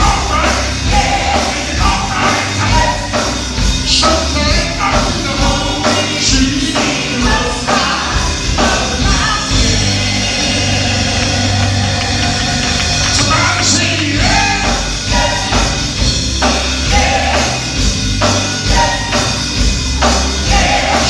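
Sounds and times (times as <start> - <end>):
lead singer singing: 0.0 - 16.0
gospel band playing: 0.0 - 21.0.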